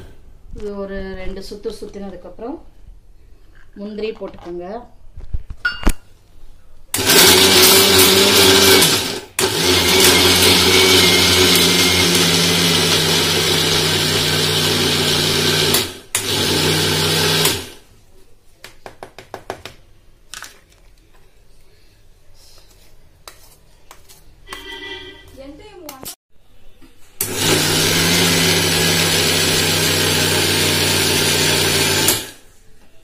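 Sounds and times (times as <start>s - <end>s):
mixer grinder running: 7.0s - 17.8s, 27.2s - 32.4s.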